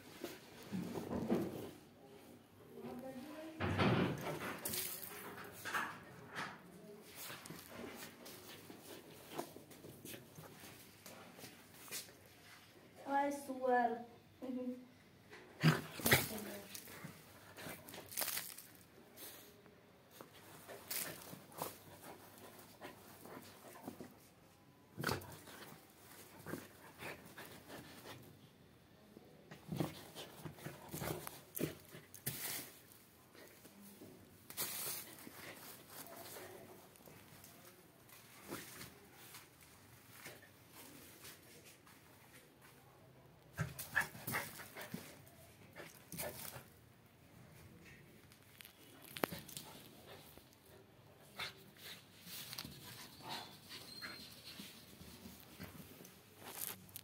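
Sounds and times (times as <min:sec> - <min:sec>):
puppy digging in sand: 0:20.1 - 0:24.1.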